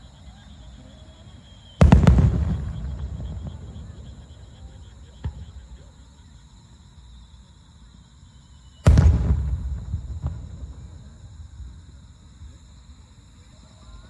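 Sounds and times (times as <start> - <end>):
fireworks booming: 1.3 - 6.0, 8.8 - 12.6
firework pops: 1.8 - 4.1, 8.9 - 11.0.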